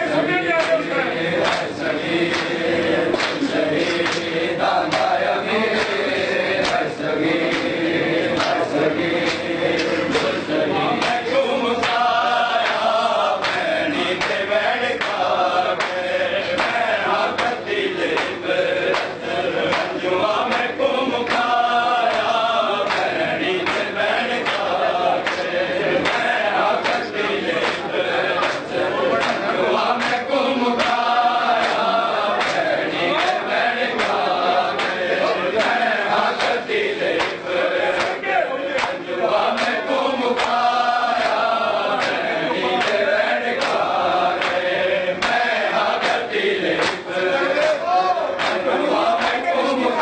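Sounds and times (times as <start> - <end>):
men chanting lament: 0.0 - 50.0
hands slapping chests: 4.9 - 5.2, 37.2 - 37.4, 38.0 - 38.2.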